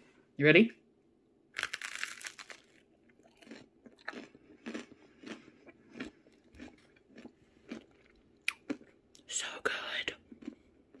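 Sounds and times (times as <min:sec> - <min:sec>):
crunchy chewing of toast: 0:01.6 - 0:09.3, 0:10.2 - 0:11.0.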